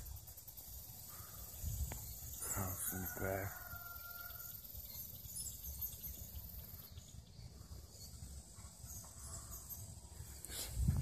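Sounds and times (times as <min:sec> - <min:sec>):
wind rumble on microphone: 0:01.5 - 0:02.3, 0:10.5 - 0:11.0.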